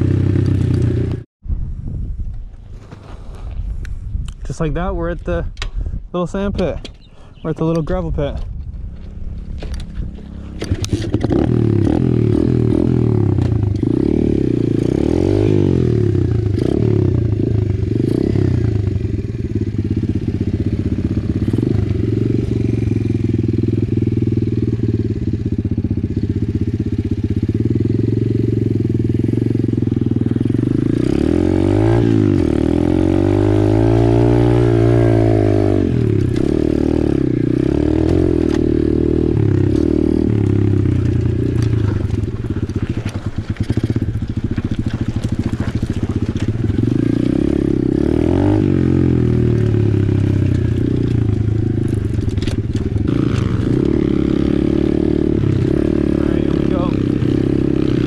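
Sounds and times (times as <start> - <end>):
motorbike engine revving: 0.0 - 1.3, 8.8 - 58.0
tyres on gravel: 6.5 - 14.0, 39.4 - 54.7.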